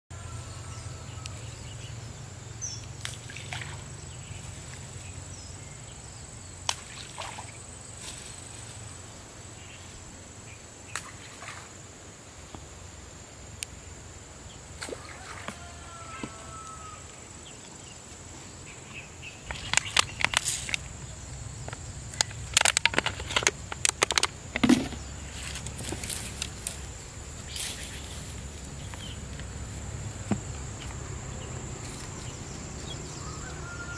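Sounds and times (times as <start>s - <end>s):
sharp clicks and rustling: 19.5s - 21.0s, 21.6s - 26.9s.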